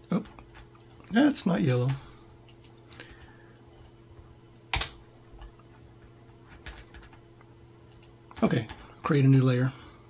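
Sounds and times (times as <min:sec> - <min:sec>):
steady low hum: 0:00.0 - 0:10.0
computer keyboard and mouse clicks: 0:01.8 - 0:02.8, 0:04.7 - 0:05.5, 0:06.5 - 0:07.2, 0:07.9 - 0:08.8.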